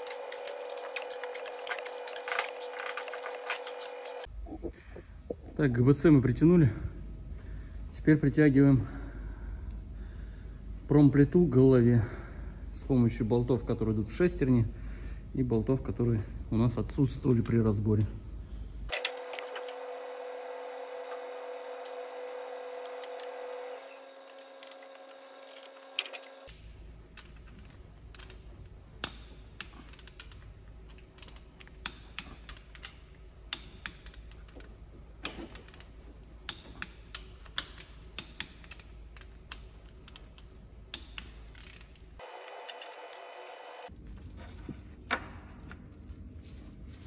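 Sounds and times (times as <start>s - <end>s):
metallic clicks of hand tools: 29.0s - 42.0s.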